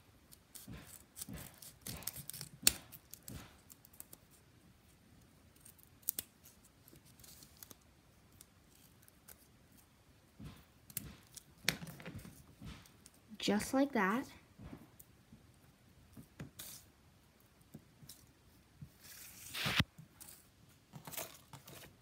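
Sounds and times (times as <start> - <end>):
scissors snipping paper: 0.3 - 4.4, 5.6 - 9.9.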